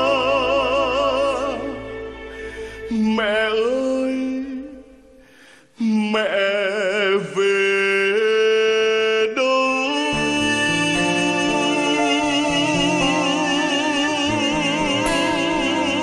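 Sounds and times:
man singing a slow ballad: 0.0 - 16.0
instrumental accompaniment: 10.1 - 16.0.

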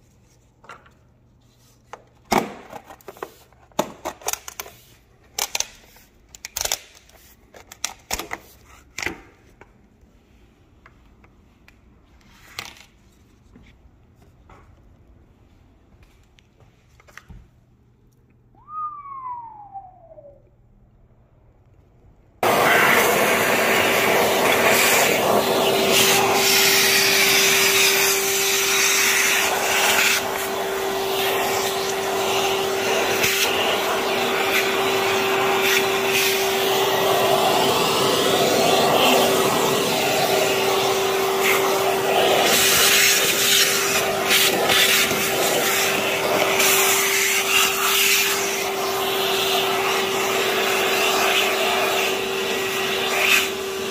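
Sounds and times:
short falling whistle: 18.6 - 20.5
vacuum cleaner running: 22.4 - 53.9.

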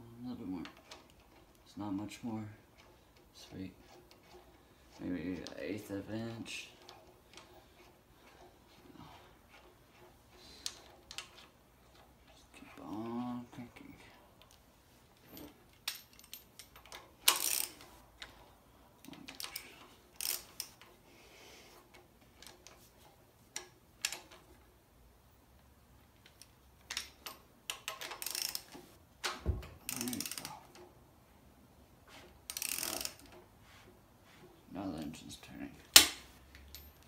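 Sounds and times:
tools clinking: 14.4 - 18.4, 26.2 - 28.9, 35.9 - 37.0
socket ratchet clicking: 15.8 - 17.9, 26.3 - 28.9, 32.5 - 33.4.

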